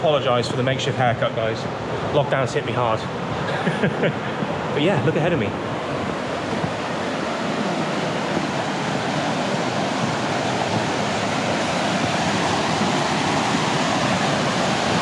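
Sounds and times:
water rushing over a weir: 0:00.0 - 0:15.0.

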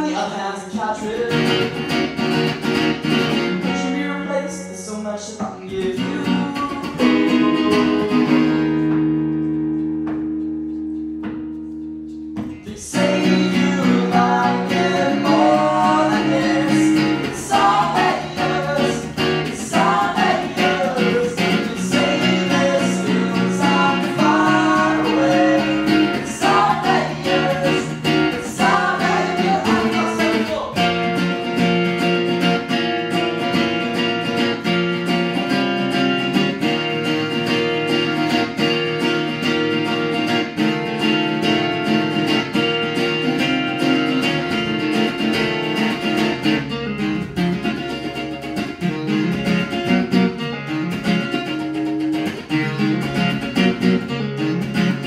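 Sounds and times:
electric guitar: 0:00.0 - 0:55.0
strummed acoustic guitar: 0:00.0 - 0:55.0
person singing: 0:03.6 - 0:08.4, 0:12.6 - 0:31.3.

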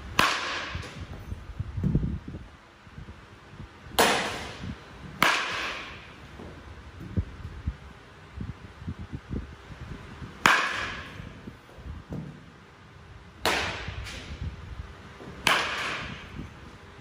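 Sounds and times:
baseball bat hitting balls: 0:00.0 - 0:01.9, 0:03.9 - 0:07.2, 0:10.2 - 0:17.0.

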